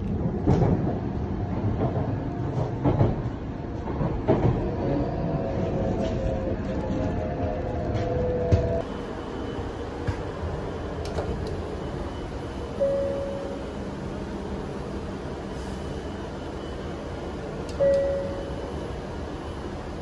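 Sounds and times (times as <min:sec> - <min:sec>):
train running rumble: 0:00.0 - 0:20.0
short single-pitch tone: 0:12.8 - 0:13.7, 0:17.8 - 0:18.7.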